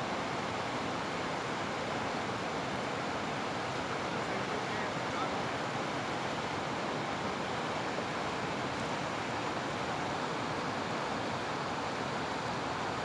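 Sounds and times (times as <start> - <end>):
river rushing over rapids: 0.0 - 13.0.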